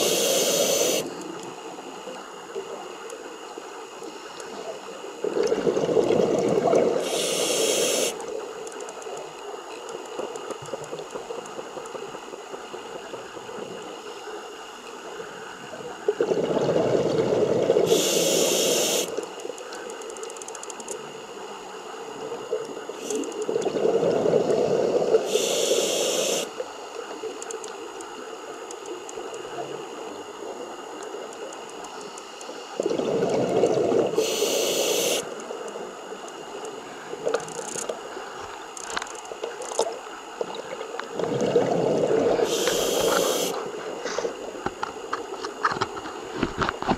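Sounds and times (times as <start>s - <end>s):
diver breathing through regulator: 0.0s - 1.1s, 7.0s - 8.2s, 41.6s - 44.4s
underwater background: 0.0s - 46.9s.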